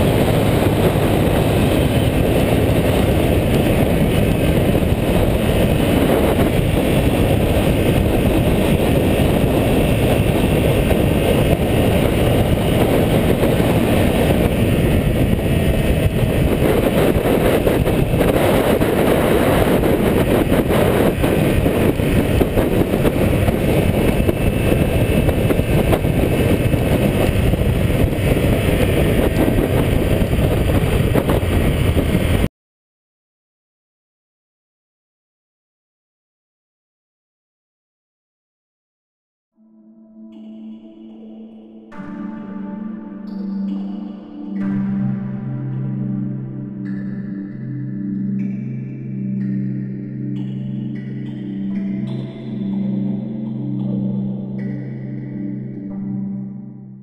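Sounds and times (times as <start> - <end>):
motorcycle engine: 0.0 - 32.5
wind rushing over microphone: 0.0 - 32.5.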